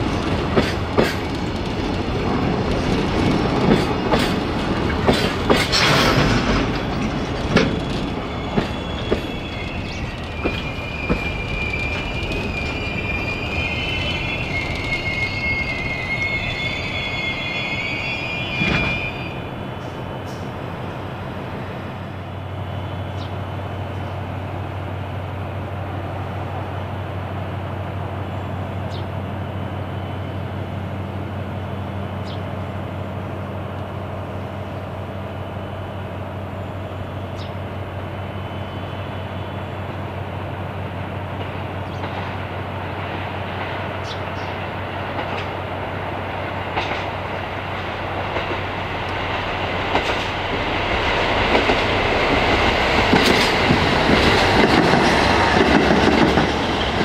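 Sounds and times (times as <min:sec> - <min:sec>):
train wheels clattering on rails: 0:00.0 - 0:15.8, 0:41.2 - 0:57.0.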